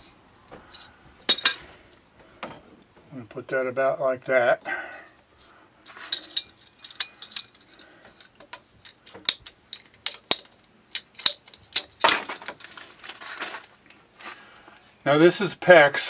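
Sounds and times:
metal tool and fittings clicking: 0:05.9 - 0:12.1
scraping rustle: 0:12.2 - 0:14.6.

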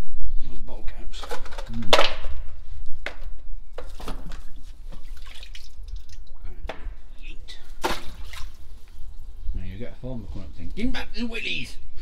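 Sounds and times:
water dripping and splashing: 0:04.3 - 0:06.5, 0:07.8 - 0:09.0.

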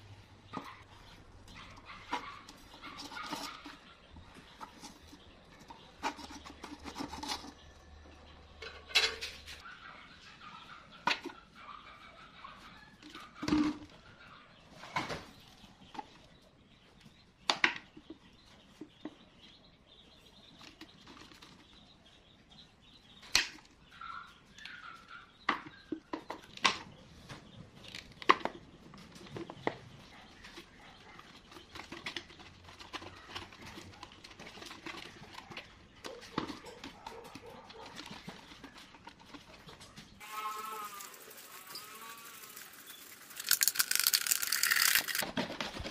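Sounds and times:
plastic bottles crackling: 0:40.3 - 0:45.9.

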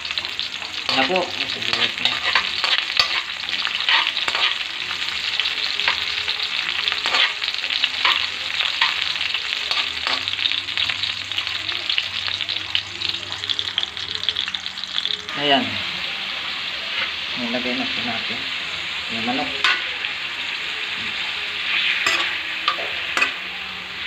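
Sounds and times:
garlic sizzling in hot oil: 0:00.0 - 0:24.0
metal spoon scraping a wok: 0:00.8 - 0:04.7, 0:06.9 - 0:10.3, 0:21.6 - 0:23.4.

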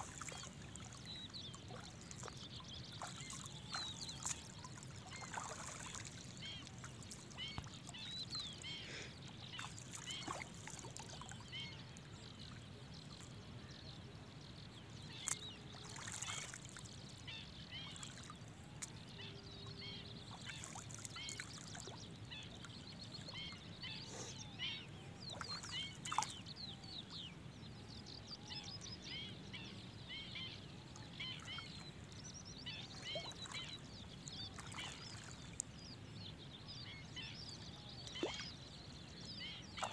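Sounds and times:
footsteps wading through water: 0:00.0 - 0:08.8, 0:09.6 - 0:11.4, 0:15.2 - 0:16.8
short bird calls: 0:23.9 - 0:24.6.

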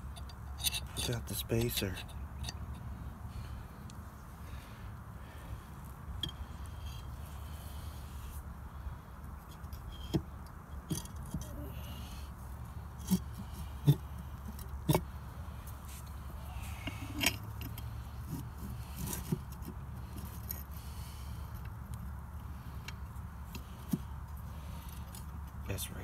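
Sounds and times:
pump parts clicking and knocking: 0:00.0 - 0:02.9, 0:09.5 - 0:11.5, 0:13.0 - 0:15.1, 0:16.7 - 0:20.7
steady low hum: 0:00.0 - 0:26.0.

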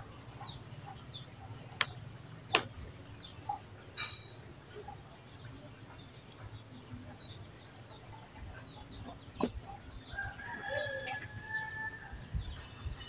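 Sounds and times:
rooster crowing: 0:10.1 - 0:12.2.

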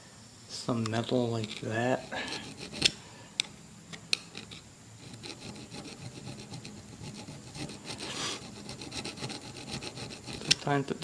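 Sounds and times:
screwdriver scraping rubber off metal: 0:01.3 - 0:03.0, 0:04.2 - 0:10.7.

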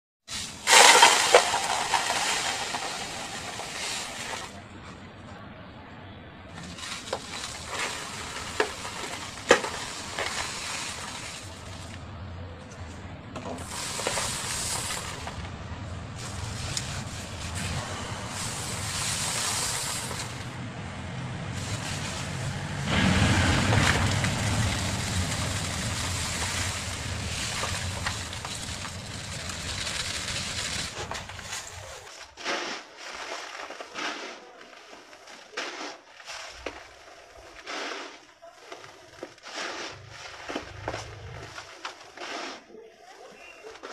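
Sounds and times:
concrete mix pouring into bucket: 0:00.3 - 0:04.6, 0:06.6 - 0:12.0, 0:13.4 - 0:15.5, 0:16.2 - 0:20.5, 0:21.5 - 0:34.3
crumbly patters of falling mix: 0:00.3 - 0:04.6, 0:06.6 - 0:20.8, 0:21.4 - 0:32.1.

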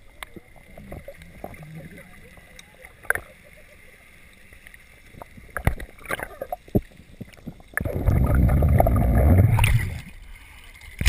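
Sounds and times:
fins churning water: 0:00.0 - 0:11.0
sharp underwater clicks and knocks: 0:05.1 - 0:10.0.

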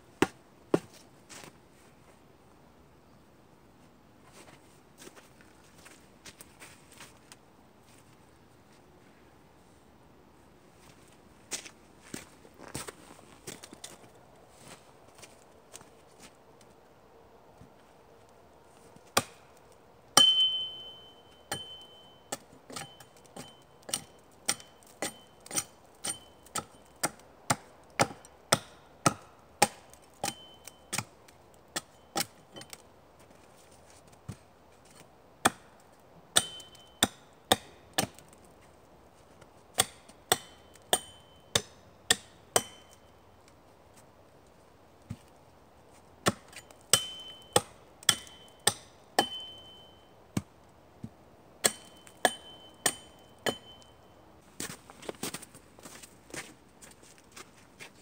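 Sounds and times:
axe chopping wooden pole: 0:19.2 - 0:19.4, 0:20.2 - 0:31.1, 0:35.4 - 0:35.7, 0:36.4 - 0:38.2, 0:39.8 - 0:43.0, 0:46.2 - 0:49.8, 0:50.4 - 0:53.9
high ringing from axe head: 0:20.2 - 0:27.0, 0:30.2 - 0:31.0, 0:36.4 - 0:37.2, 0:40.3 - 0:43.2, 0:46.5 - 0:50.2, 0:51.6 - 0:54.2.

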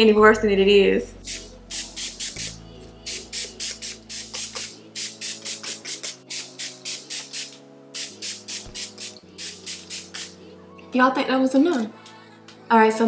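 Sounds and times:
background music: 0:00.0 - 0:13.0
spray bottle spritzing: 0:01.2 - 0:10.4.

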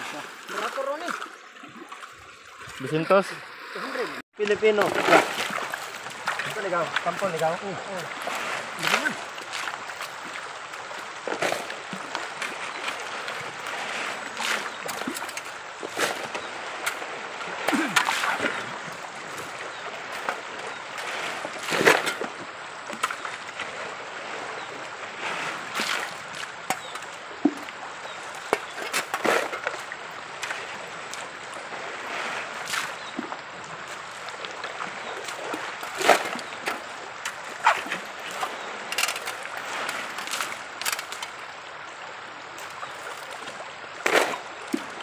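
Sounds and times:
river water running: 0:00.0 - 0:45.0
stones and gravel clattering: 0:35.8 - 0:41.4.

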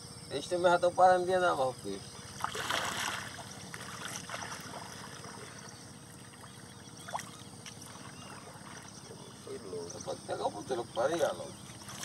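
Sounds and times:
water trickling and splashing: 0:02.2 - 0:09.6, 0:10.6 - 0:12.0.

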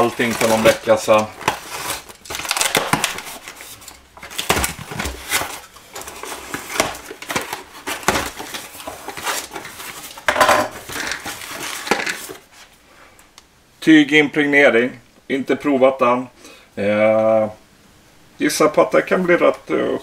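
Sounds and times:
knife slitting packing tape: 0:00.0 - 0:10.1
cardboard box being unpacked: 0:00.0 - 0:12.5.

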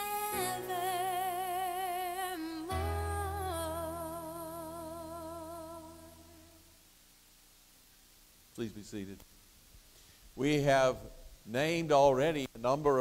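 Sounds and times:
hymn singing with vibrato: 0:00.0 - 0:06.8.

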